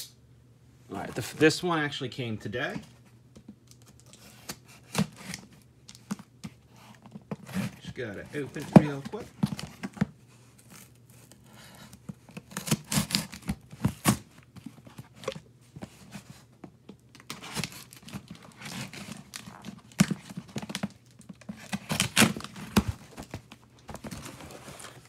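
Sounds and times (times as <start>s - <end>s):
cardboard and packing rustling: 0.9s - 1.7s, 2.6s - 25.0s
packing tape tearing: 10.6s - 14.3s, 17.1s - 23.4s.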